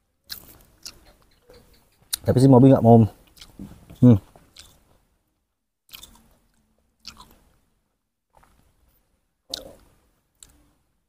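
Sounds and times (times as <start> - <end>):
monkey chewing wet fruit: 0.3 - 1.8.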